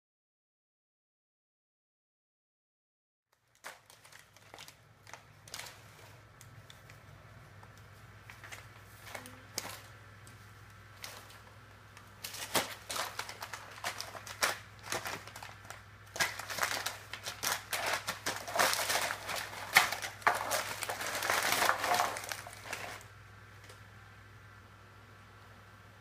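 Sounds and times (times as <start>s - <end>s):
paper crinkling and rustling: 3.4s - 23.1s.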